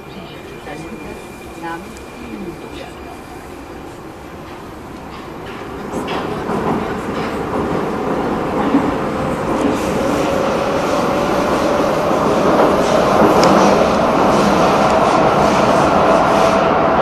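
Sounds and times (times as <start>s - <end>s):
metro train running noise: 0.0s - 17.0s.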